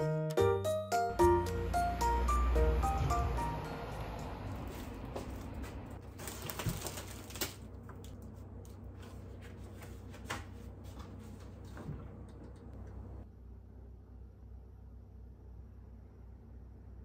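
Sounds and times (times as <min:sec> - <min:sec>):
shopping bags rustling: 0:04.5 - 0:07.8.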